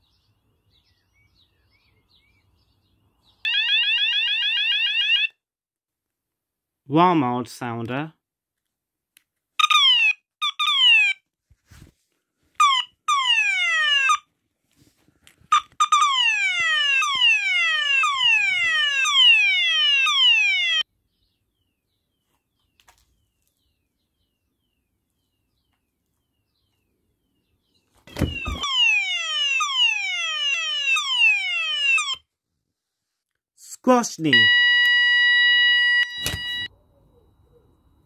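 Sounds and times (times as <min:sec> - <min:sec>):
fire alarm falling sweep tone: 0:12.6 - 0:14.2, 0:15.5 - 0:20.8, 0:28.1 - 0:32.2, 0:34.3 - 0:36.7.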